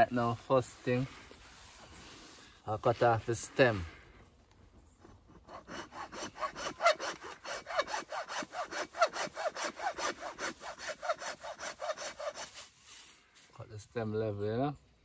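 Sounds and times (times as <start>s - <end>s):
hand saw cutting woody stem: 5.3s - 12.7s.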